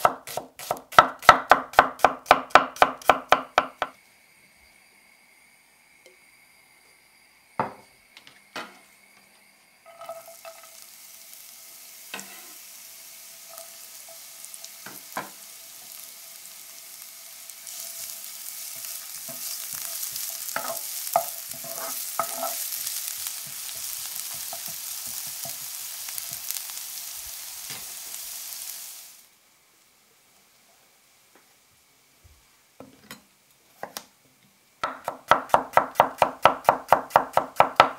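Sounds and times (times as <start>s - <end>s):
onion sizzling in oil: 0.0s - 33.9s, 34.6s - 37.9s
spatula knocking and scraping pan: 12.1s - 12.6s, 18.7s - 26.5s.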